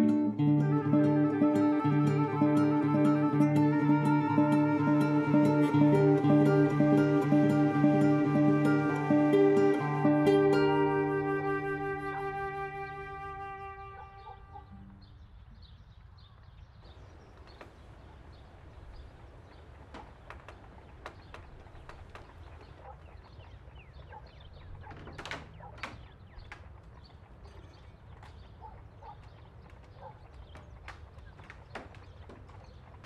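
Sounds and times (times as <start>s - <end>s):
small birds chirping: 14.0s - 33.0s
wooden doors knocking open: 24.7s - 26.3s.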